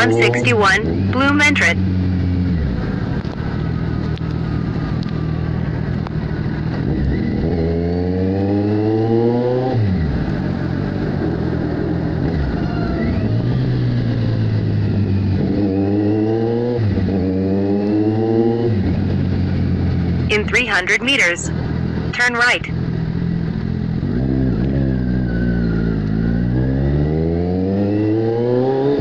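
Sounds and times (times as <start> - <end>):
motorcycle engine revving: 0.0 - 20.3, 22.7 - 29.0.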